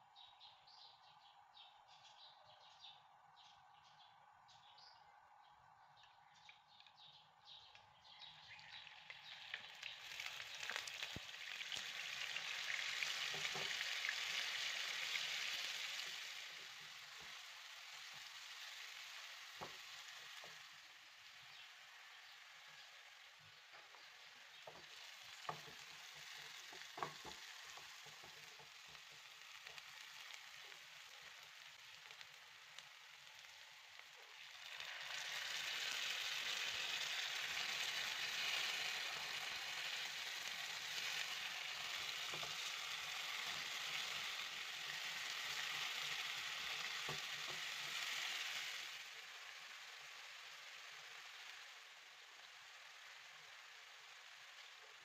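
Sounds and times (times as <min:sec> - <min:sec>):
onions frying in oil: 0:06.3 - 0:55.0
utensil tapping pan: 0:23.7 - 0:30.0.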